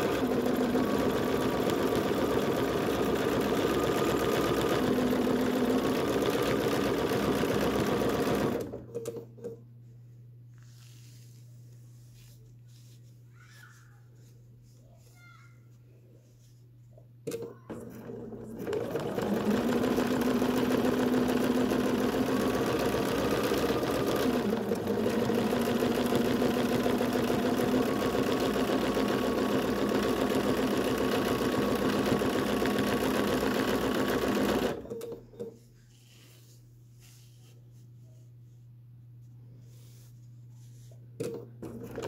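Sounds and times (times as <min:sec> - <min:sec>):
sewing machine stitching: 0:00.0 - 0:09.6, 0:17.3 - 0:35.6.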